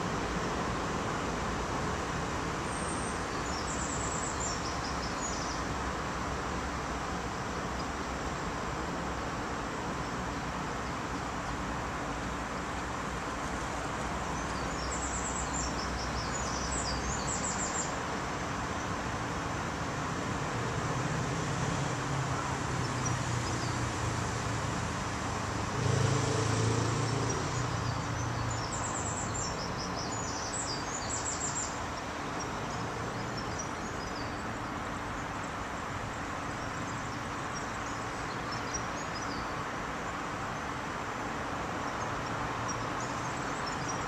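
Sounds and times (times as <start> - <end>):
steady background noise: 0.0 - 44.0
birds chirping: 26.8 - 40.8.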